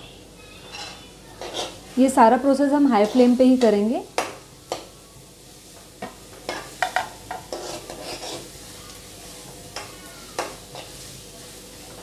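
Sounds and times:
frying sizzle: 0:00.0 - 0:12.0
metal spoon scraping pan: 0:00.7 - 0:01.8, 0:06.5 - 0:08.5.

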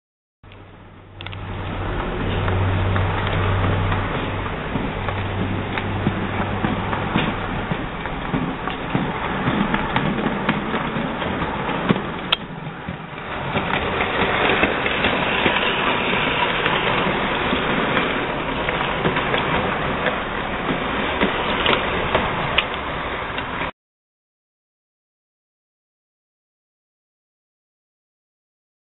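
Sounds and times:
model train rolling rattle: 0:01.2 - 0:23.7.

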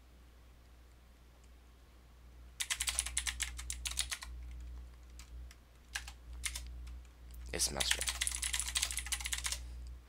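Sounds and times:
typing on computer keyboard: 0:02.6 - 0:05.3, 0:05.9 - 0:07.0, 0:07.8 - 0:09.6.

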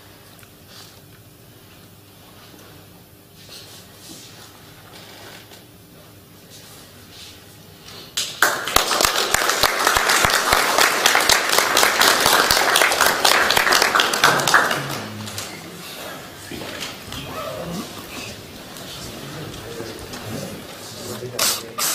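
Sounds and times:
crowd applauding: 0:08.4 - 0:15.8.

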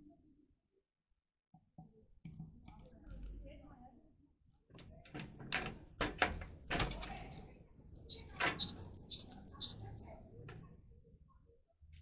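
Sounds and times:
canary chirping: 0:06.1 - 0:10.2
wing flutters: 0:06.3 - 0:10.1.

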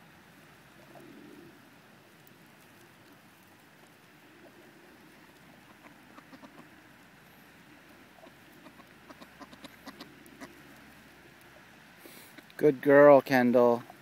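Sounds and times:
ducks feeding clicks: 0:00.7 - 0:12.6
soft duck calls: 0:05.6 - 0:06.8, 0:08.2 - 0:10.7.

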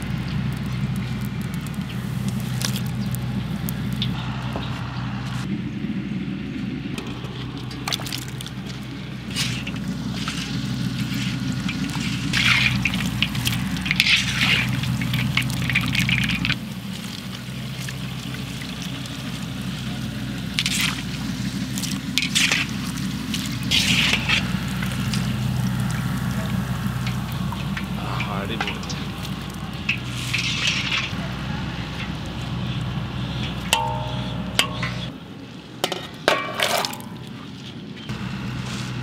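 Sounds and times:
oil bubbling and fizzing: 0:00.0 - 0:04.2, 0:07.0 - 0:34.8
steady low hum: 0:00.0 - 0:35.1
skimmer swishing through oil: 0:07.4 - 0:33.8.

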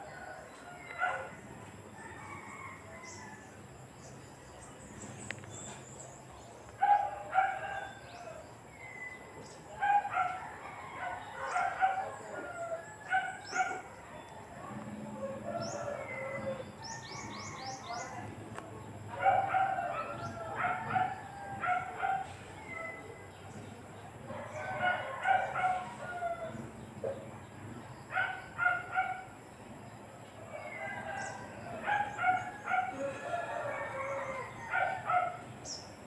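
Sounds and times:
small birds chirping: 0:00.0 - 0:10.4, 0:11.1 - 0:36.0
fowl clucking and crowing: 0:30.4 - 0:35.2.

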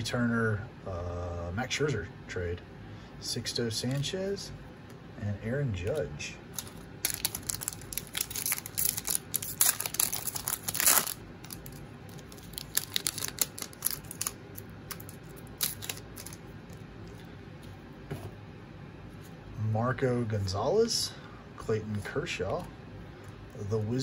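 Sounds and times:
plastic wrapper tearing and crinkling: 0:06.5 - 0:16.4
cards being handled: 0:06.6 - 0:18.3.

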